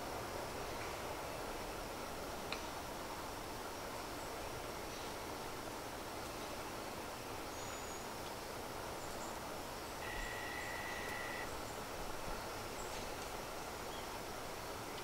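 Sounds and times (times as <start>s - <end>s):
steady woodland hiss: 0.0s - 15.0s
faint high chirps: 10.0s - 11.5s
whistle-like tone: 10.0s - 11.5s.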